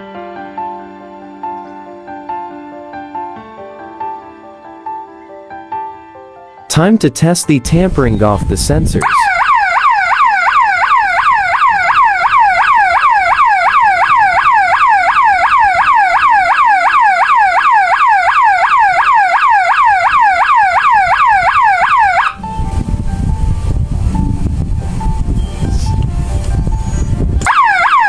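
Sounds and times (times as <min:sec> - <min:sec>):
electronic siren wailing: 0:09.0 - 0:22.6, 0:27.4 - 0:28.0.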